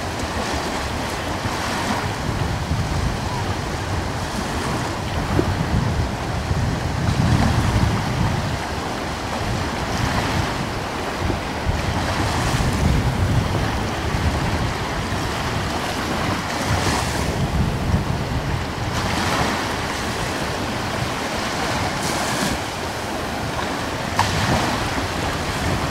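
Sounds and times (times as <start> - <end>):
ocean waves washing: 0.0 - 25.9.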